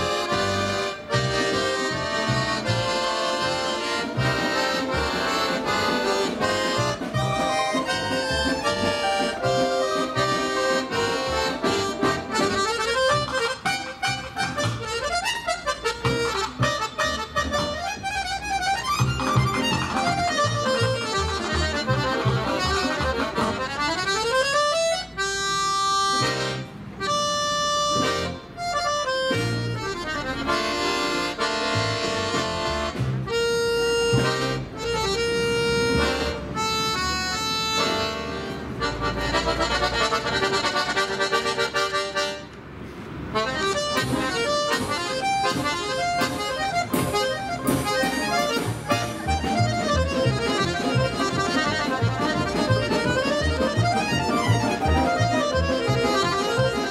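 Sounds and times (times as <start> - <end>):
violin: 0.0 - 41.4
plucked string instruments: 0.0 - 42.6, 43.4 - 56.9
accordion: 0.0 - 56.9.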